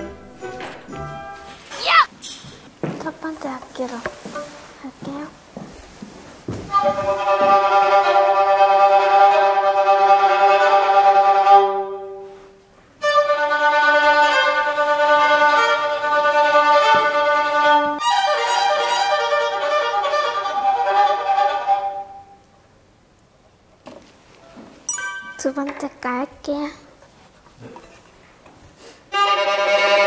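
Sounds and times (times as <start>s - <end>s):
solo violin bowed notes: 6.7s - 22.4s, 29.1s - 30.0s.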